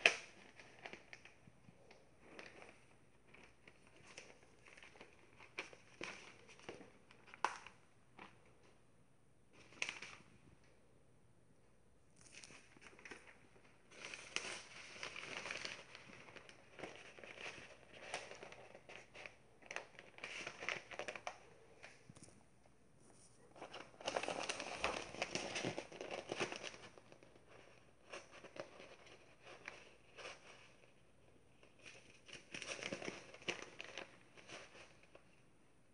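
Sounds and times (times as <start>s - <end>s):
newspaper rustling and crinkling: 0.0s - 8.6s, 9.5s - 10.4s, 12.2s - 22.3s, 23.1s - 35.4s.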